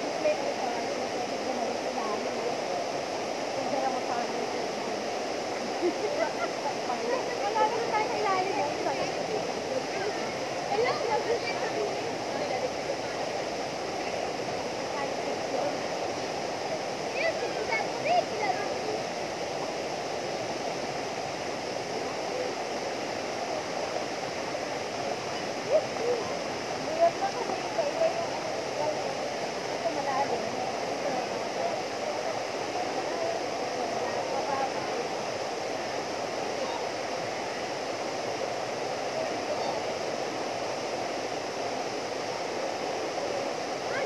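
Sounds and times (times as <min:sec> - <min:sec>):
waterfall pouring into pool: 0:00.0 - 0:44.0.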